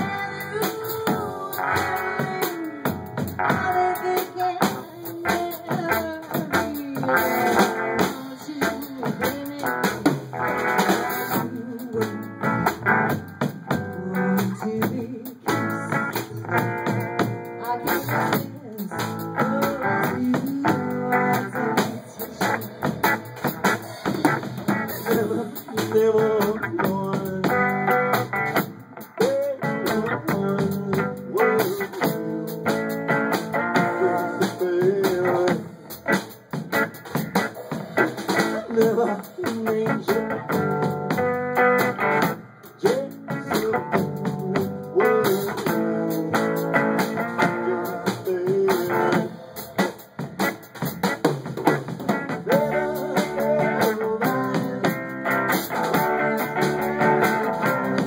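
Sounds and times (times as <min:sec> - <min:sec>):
woman singing: 0:00.0 - 0:12.8, 0:13.7 - 0:27.8, 0:29.2 - 0:32.8, 0:38.4 - 0:40.6, 0:42.8 - 0:49.4, 0:52.5 - 0:55.2
swing band playing: 0:00.0 - 0:58.0.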